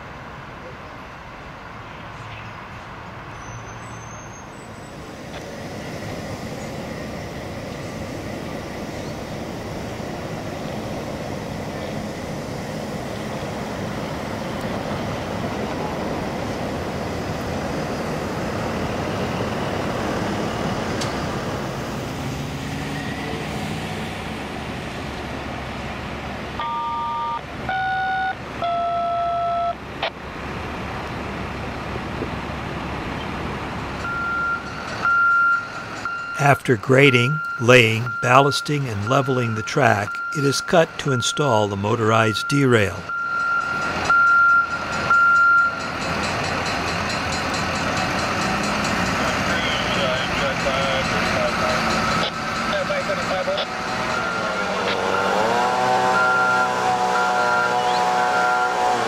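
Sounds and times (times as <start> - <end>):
heavy machinery rumble: 42.9 - 59.0.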